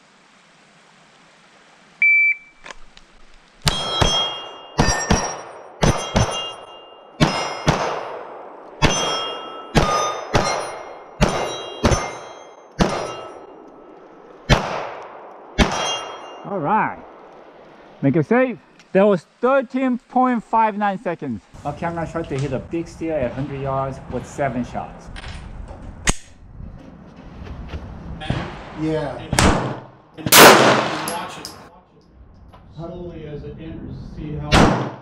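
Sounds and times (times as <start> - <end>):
shot timer beep: 2.0 - 2.6
pistol shots: 3.6 - 6.6, 7.2 - 13.3, 14.5 - 16.2, 29.4 - 31.5, 34.5 - 35.0
steel targets ringing: 3.6 - 14.0, 15.6 - 17.2, 30.3 - 31.7.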